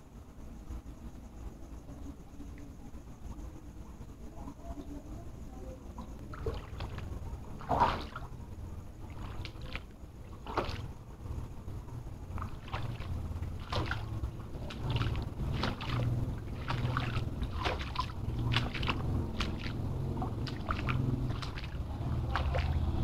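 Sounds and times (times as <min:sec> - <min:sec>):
low rumble: 0:00.0 - 0:23.0
footsteps splashing through water: 0:06.4 - 0:08.3, 0:09.1 - 0:10.9, 0:12.3 - 0:23.0.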